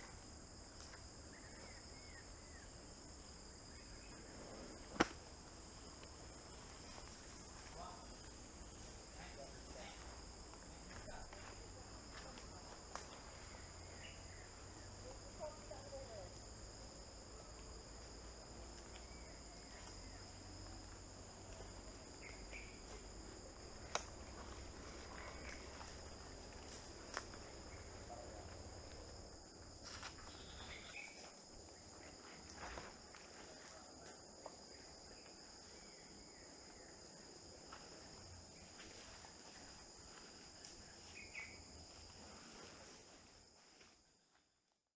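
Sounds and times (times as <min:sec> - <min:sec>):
insects buzzing: 0:00.0 - 0:44.4
sharp snaps: 0:04.9 - 0:05.2, 0:23.8 - 0:24.2.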